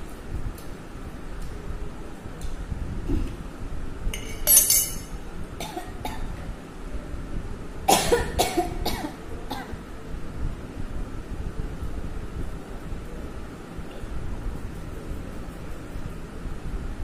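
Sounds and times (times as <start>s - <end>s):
woman coughing: 7.9s - 9.8s.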